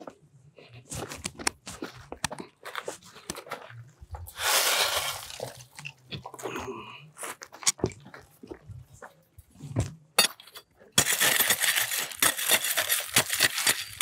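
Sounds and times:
stones crunching and clinking: 0:04.2 - 0:06.5, 0:10.2 - 0:14.0
shovel scraping through gravel: 0:04.3 - 0:05.8, 0:11.0 - 0:14.0.

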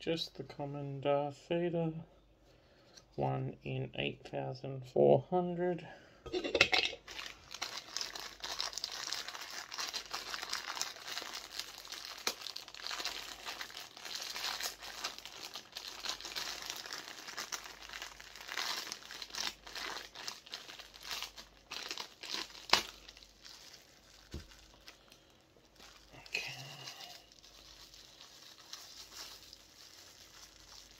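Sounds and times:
crinkly plastic wrapping crackling: 0:06.3 - 0:30.9.

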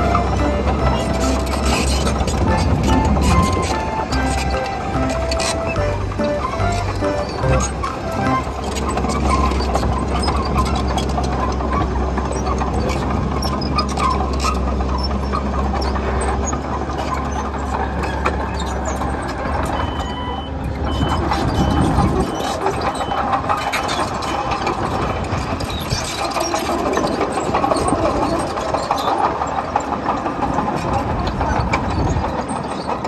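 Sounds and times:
diesel engine of earthmover: 0:00.0 - 0:33.0
machine squeaks and clanks: 0:00.0 - 0:33.0
short high beeps: 0:02.5 - 0:08.6.

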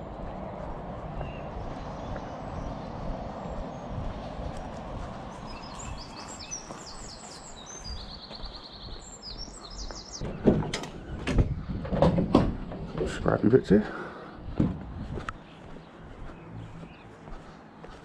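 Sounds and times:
outdoor background noise: 0:00.0 - 0:18.0
songbirds chirping and trilling: 0:00.0 - 0:18.0
loud knocks and thumps: 0:10.2 - 0:13.2, 0:14.5 - 0:15.0.

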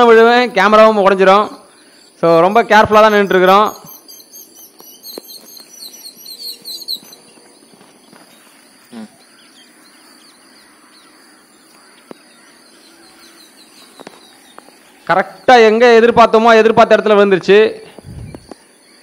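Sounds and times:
high insect drone: 0:00.0 - 0:16.9
small birds chirping: 0:00.0 - 0:19.0.

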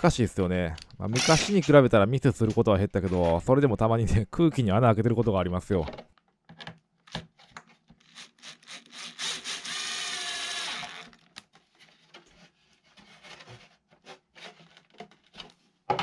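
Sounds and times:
cordless drill whining: 0:08.1 - 0:11.2.

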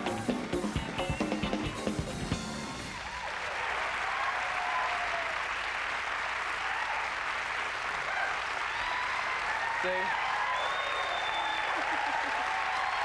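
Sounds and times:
audience applauding: 0:00.0 - 0:13.0
whoops: 0:02.8 - 0:05.6, 0:08.1 - 0:13.0.

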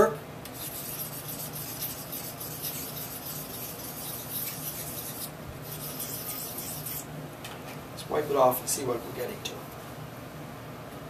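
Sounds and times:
knife blade scraping on stone: 0:00.6 - 0:07.1.

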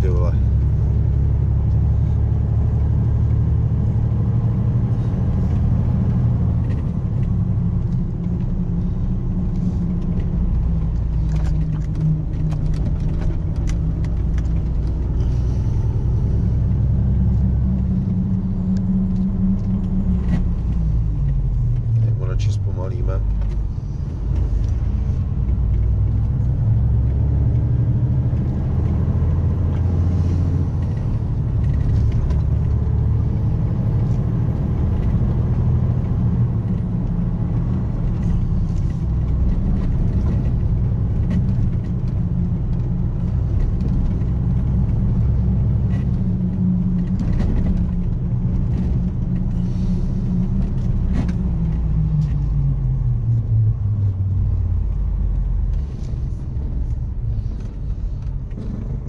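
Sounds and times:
vehicle engine and road rumble: 0:00.0 - 0:59.0.

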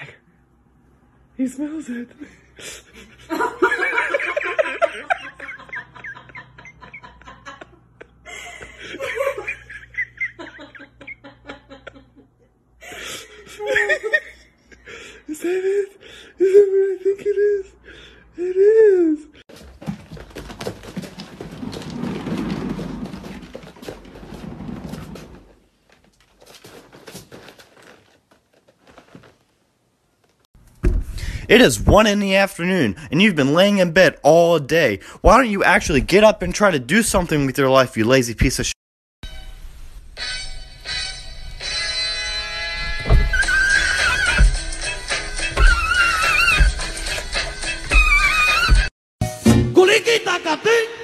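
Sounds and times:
person giggling: 0:02.7 - 0:17.8
cat exercise wheel rolling: 0:19.5 - 0:28.3.

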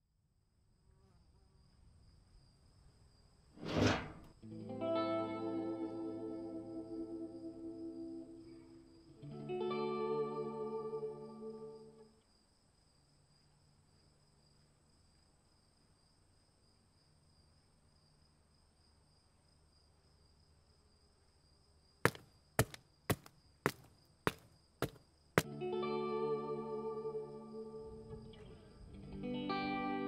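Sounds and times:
sharp footsteps: 0:22.1 - 0:25.5.

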